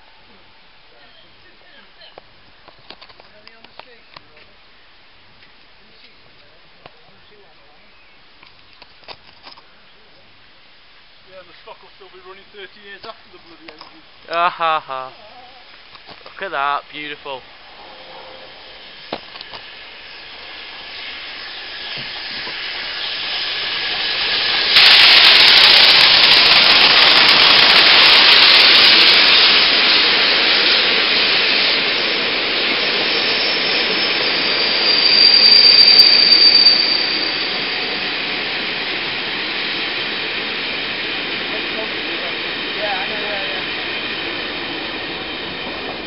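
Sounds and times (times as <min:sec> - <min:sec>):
steam train passing: 0:00.0 - 0:08.4, 0:09.7 - 0:46.0
loud hiss of steam: 0:09.7 - 0:46.0
high-pitched train squeal: 0:17.5 - 0:46.0.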